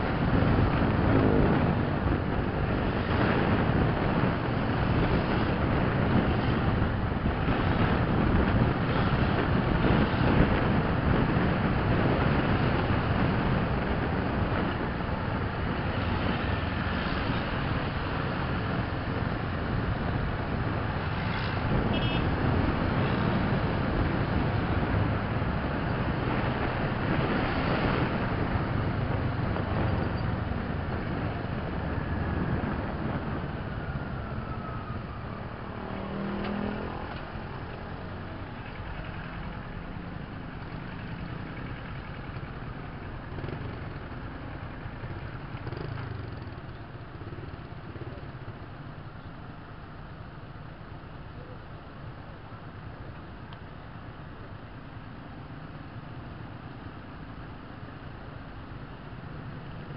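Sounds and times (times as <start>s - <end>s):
wind rush: 0.0s - 38.5s
motorcycle engine: 35.7s - 48.2s.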